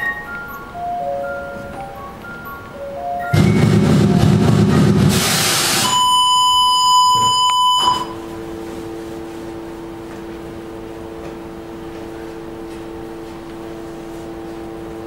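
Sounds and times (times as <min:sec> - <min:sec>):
low steady hum: 0:00.0 - 0:15.0
steady electronic beep: 0:03.2 - 0:08.2
loud burst of noise: 0:03.3 - 0:08.1.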